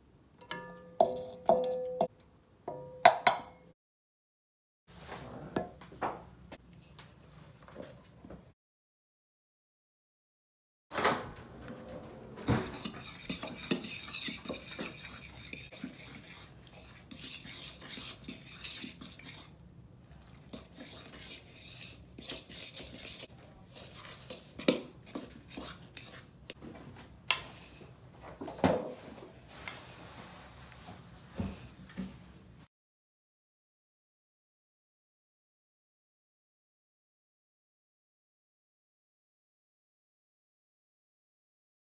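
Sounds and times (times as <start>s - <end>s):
utensil clinking against bowl: 0.4s - 2.1s
utensil stirring dough in bowl: 0.5s - 2.1s, 12.4s - 26.6s.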